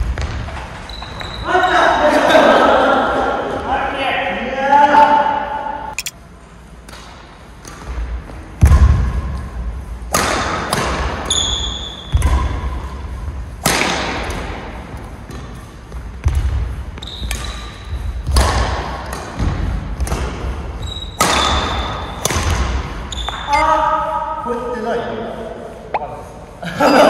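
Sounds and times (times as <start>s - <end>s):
shoes squeaking: 23.1s - 23.9s.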